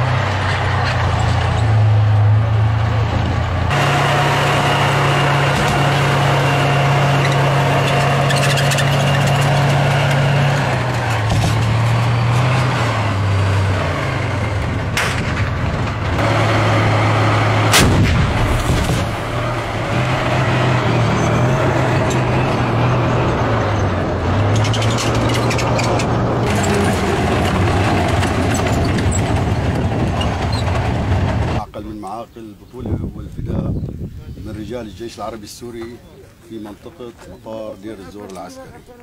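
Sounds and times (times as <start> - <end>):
diesel engine running: 0.0 - 31.6
loud bangs: 14.4 - 23.5.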